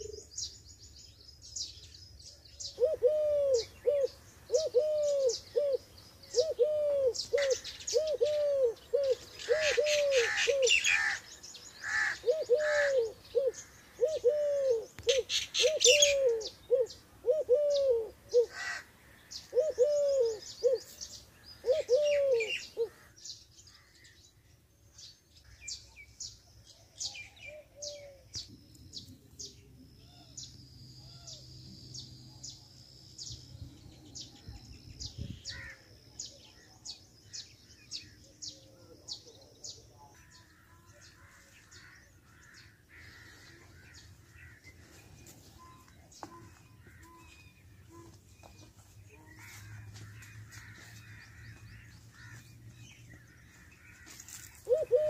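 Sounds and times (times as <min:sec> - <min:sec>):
bird cooing: 0:00.0 - 0:00.3, 0:02.6 - 0:11.2, 0:11.9 - 0:18.8, 0:19.4 - 0:23.1, 0:27.1 - 0:28.3, 0:54.6 - 0:55.0
small birds chirping: 0:00.0 - 0:55.0.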